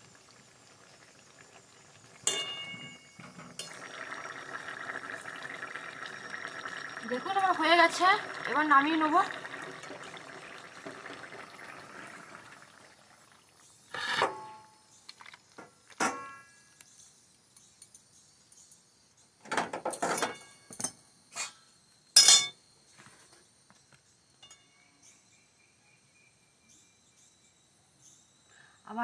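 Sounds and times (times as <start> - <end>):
metal spatula clanking on pan: 2.2 - 3.7.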